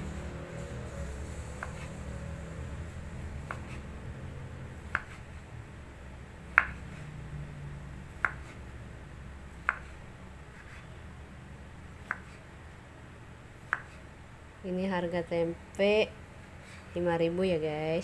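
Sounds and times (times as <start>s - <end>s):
low steady hum: 0.0s - 18.0s.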